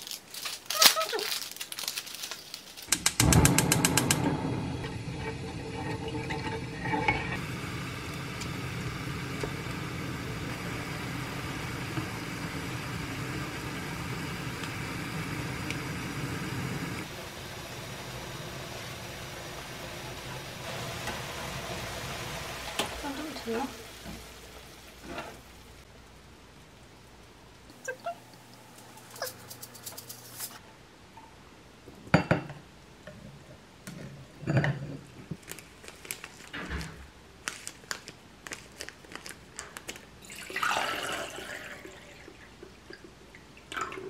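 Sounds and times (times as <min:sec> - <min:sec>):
broth boiling in a pan: 0:02.9 - 0:29.7, 0:40.2 - 0:44.0.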